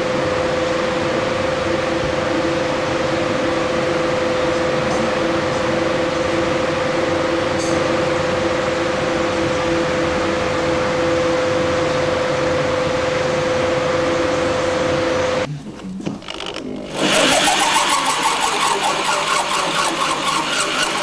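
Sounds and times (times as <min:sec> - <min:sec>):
machine whirring: 0:00.0 - 0:21.0.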